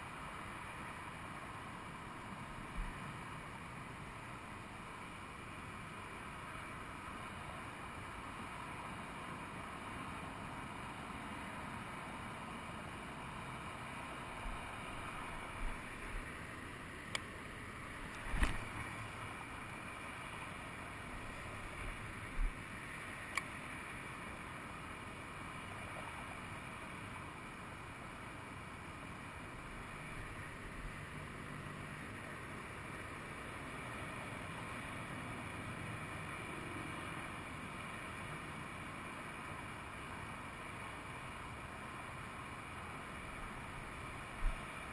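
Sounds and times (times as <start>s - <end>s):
distant freeway traffic hiss: 0.0s - 44.9s
fishing rod knocks and clicks: 18.1s - 18.7s.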